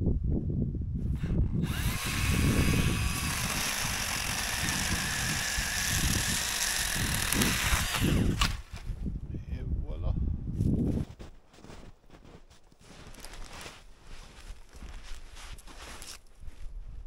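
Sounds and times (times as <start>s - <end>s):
cordless chainsaw cutting wood: 1.2s - 8.6s.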